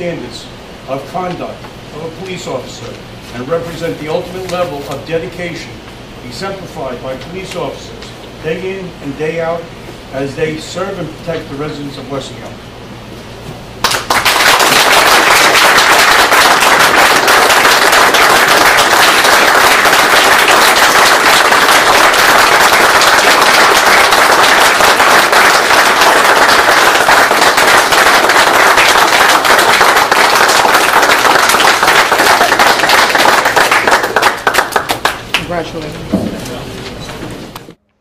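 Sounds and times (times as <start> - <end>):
crowd applauding: 13.8 - 35.6
close hand claps: 13.8 - 35.9.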